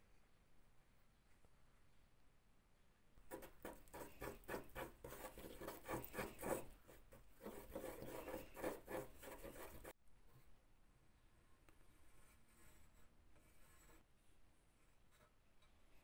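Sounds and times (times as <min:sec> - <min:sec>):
wooden stick scraping filler: 0:03.3 - 0:09.9.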